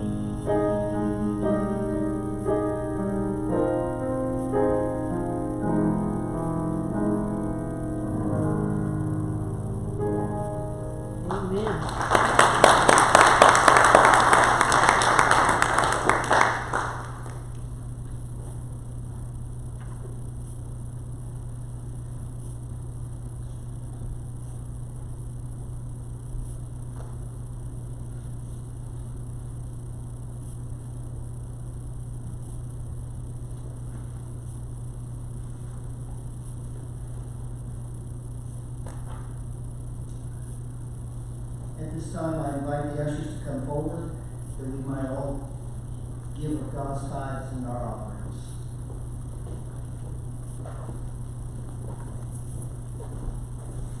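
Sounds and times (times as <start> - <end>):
steady low hum: 0.0 - 54.0
congregation applauding: 11.2 - 17.7.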